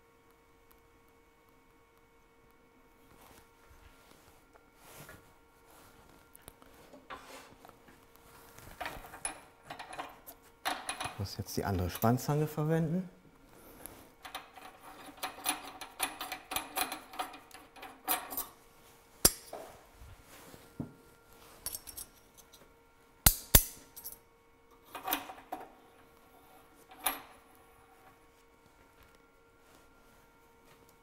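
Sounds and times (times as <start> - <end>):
faint steady hum: 0.0 - 31.0
small metal parts clinking: 21.6 - 22.6, 23.6 - 24.2.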